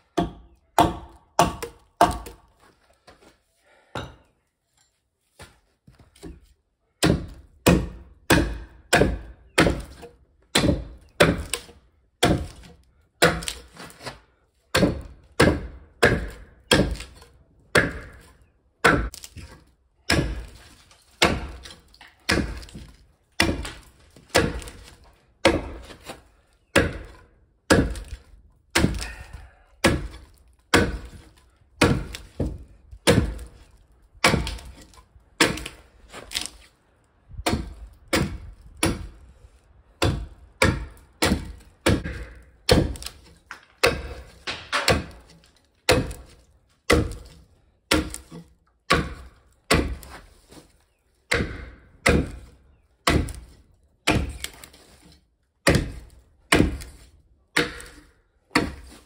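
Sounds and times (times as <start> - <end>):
axe chopping log: 0.1 - 2.6, 5.4 - 36.7, 37.4 - 39.2, 40.0 - 50.7, 51.3 - 59.0.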